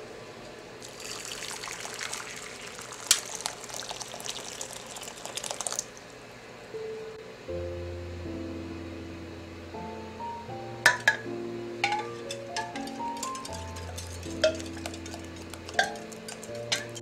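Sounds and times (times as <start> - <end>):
water pouring into glass bowl: 0.8 - 6.2.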